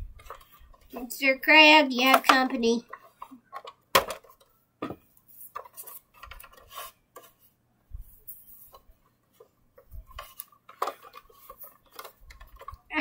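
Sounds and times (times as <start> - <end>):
soft rustling: 5.1 - 12.9.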